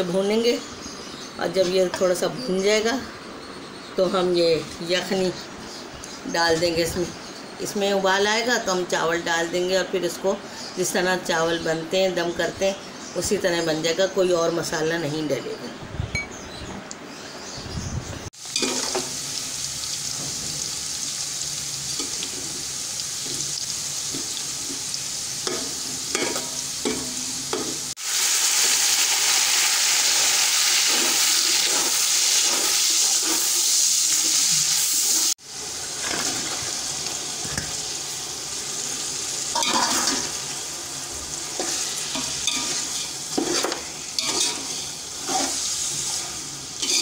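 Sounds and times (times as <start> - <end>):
food sizzling in hot oil: 18.3 - 47.0
loud steam hiss: 28.0 - 36.0
spoon stirring in pot: 41.6 - 45.7.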